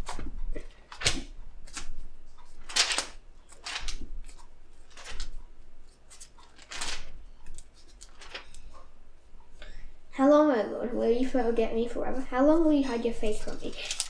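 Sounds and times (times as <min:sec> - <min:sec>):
book pages rustling: 0:00.0 - 0:08.9, 0:13.1 - 0:14.0.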